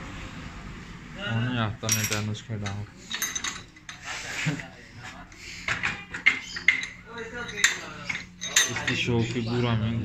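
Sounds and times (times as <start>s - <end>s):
metal clinks and taps of tools: 1.8s - 4.0s, 5.7s - 9.4s.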